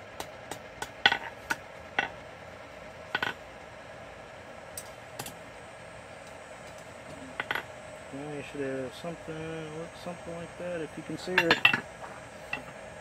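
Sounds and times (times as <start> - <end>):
steady low hum: 0.0 - 13.0
hammer striking steel on anvil: 11.4 - 11.8.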